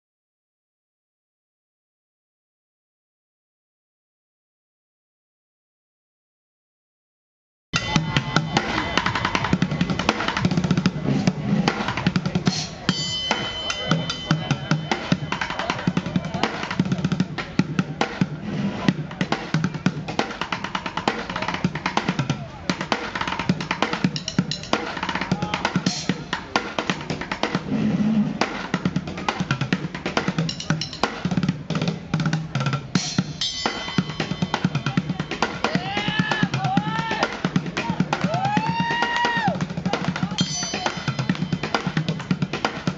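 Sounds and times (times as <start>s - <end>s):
ringing metal crashes: 12.9s - 15.8s.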